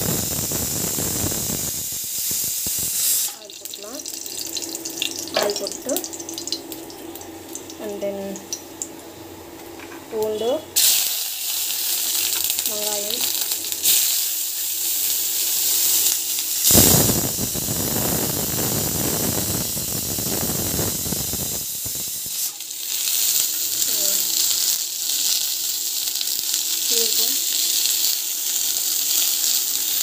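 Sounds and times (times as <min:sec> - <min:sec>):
onions sizzling loudly in pan: 0:00.0 - 0:09.0, 0:10.2 - 0:30.0
garlic sizzling in oil: 0:00.0 - 0:09.1, 0:10.1 - 0:30.0.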